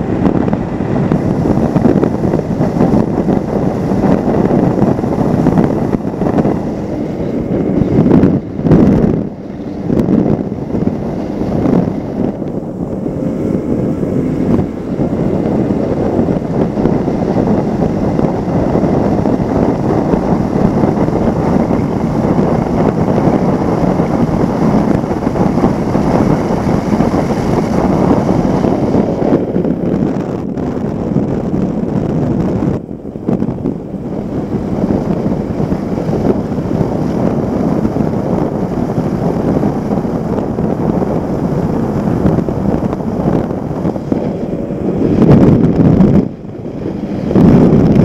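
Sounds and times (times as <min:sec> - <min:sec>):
outboard engine: 0:00.0 - 0:48.0
wind buffeting microphone: 0:00.0 - 0:48.0
rush of water spray: 0:10.5 - 0:29.4.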